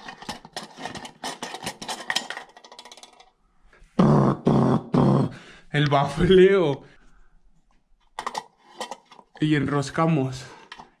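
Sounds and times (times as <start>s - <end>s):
plastic clicks and scraping: 0.0s - 3.3s, 7.6s - 9.5s, 10.5s - 11.0s.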